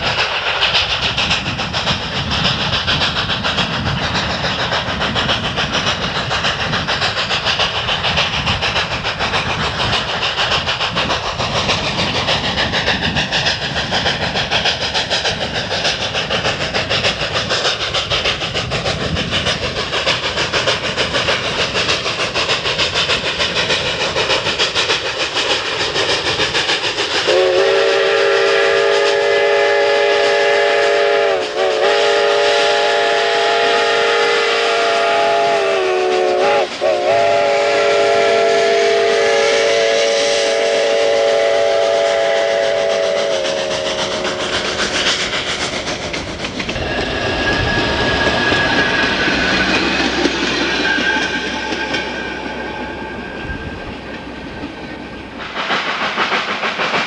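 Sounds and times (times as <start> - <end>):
rail clatter: 0.0 - 57.0
steam locomotive exhaust chuffing: 0.0 - 57.0
steam whistle chord: 27.3 - 44.4.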